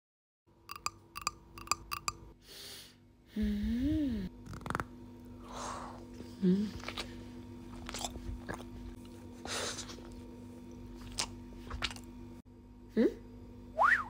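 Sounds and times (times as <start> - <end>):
person eating cupcake: 0.7 - 2.1.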